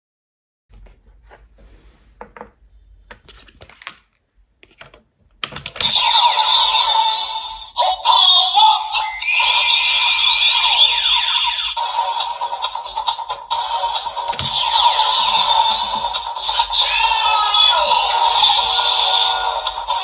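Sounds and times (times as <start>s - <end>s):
toy speaker electronic sound effects: 5.8s - 20.0s
plastic toy clicks and knocks: 14.3s - 14.6s.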